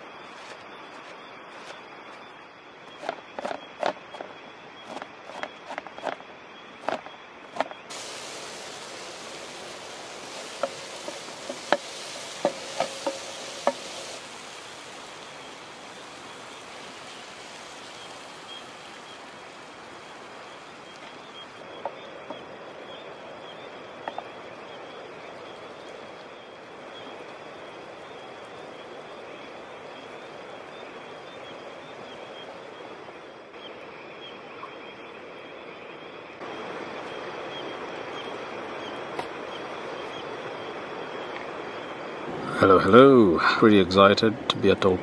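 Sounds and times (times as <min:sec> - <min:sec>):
vegetables frying in pan: 0:07.9 - 0:21.8.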